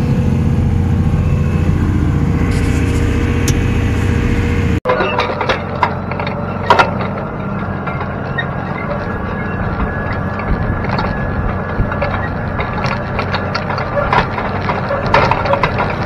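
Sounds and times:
tractor engine drone: 0.0 - 16.0
metal shanks dragging through soil: 2.4 - 4.7.

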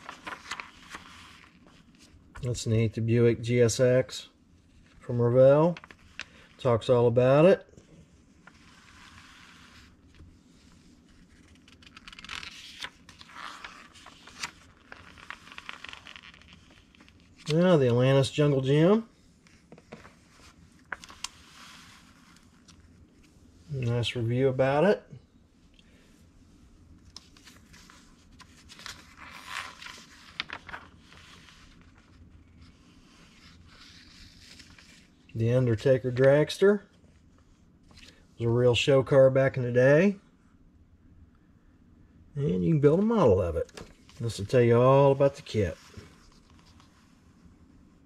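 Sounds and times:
paper crackles: 0.0 - 2.5, 5.6 - 6.6, 8.3 - 18.0, 19.4 - 23.3, 27.0 - 35.3
magazine page rustling: 0.0 - 2.6, 4.7 - 6.9, 8.1 - 23.4, 27.0 - 36.7, 43.6 - 47.2.

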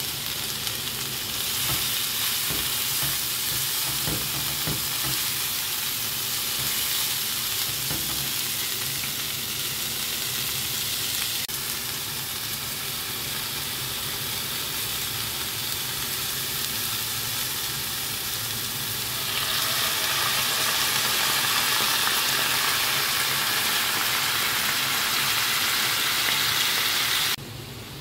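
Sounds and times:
vegetables sizzling in a skillet: 0.0 - 27.4.

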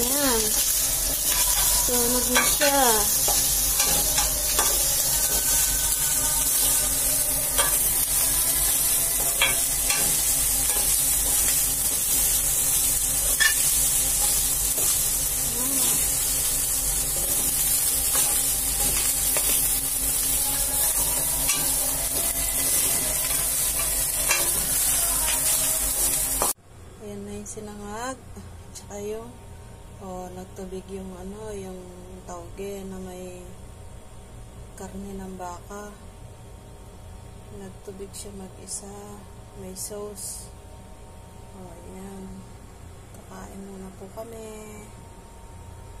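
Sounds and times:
rice sizzling in a pot: 0.0 - 26.6.

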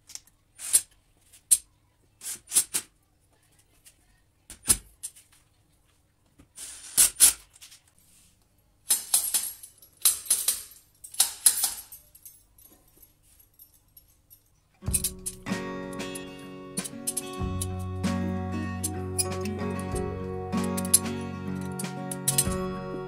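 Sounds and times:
metal hooks clinking: 8.9 - 17.8, 18.8 - 20.0, 20.6 - 22.6
hooks scraping on steel rails: 14.9 - 17.7.

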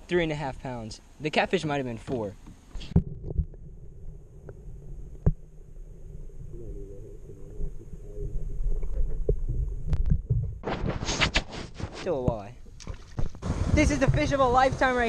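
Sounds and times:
clicks and knocks underwater: 2.1 - 15.0
underwater rumble of moving water: 2.8 - 11.0, 12.6 - 15.0.

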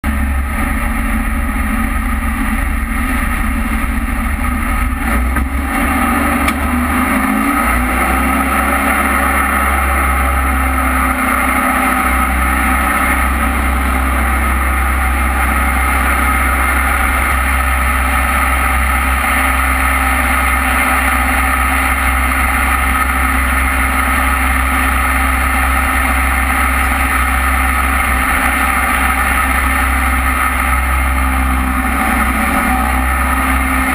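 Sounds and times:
boat engine running: 0.0 - 33.9.

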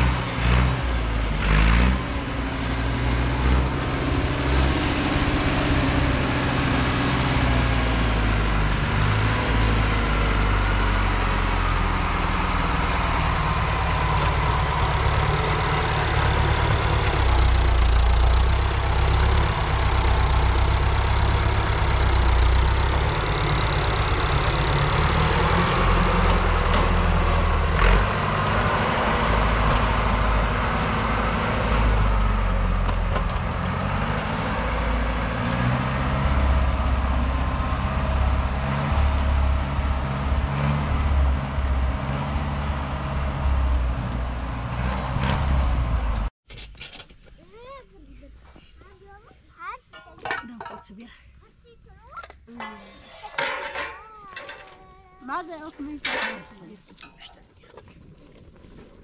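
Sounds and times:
vehicle engine running: 0.0 - 46.3.

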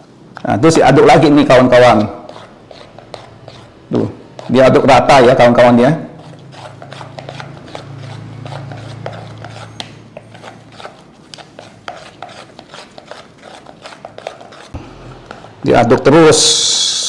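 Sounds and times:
chopsticks tapping and scraping bowl: 1.9 - 3.7, 6.2 - 15.6.

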